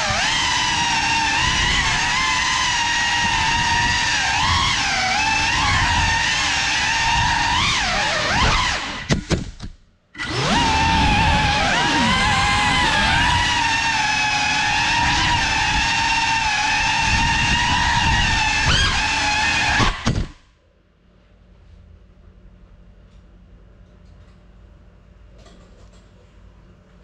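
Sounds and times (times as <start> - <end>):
drone motors whining: 0.0 - 9.2, 10.2 - 20.4.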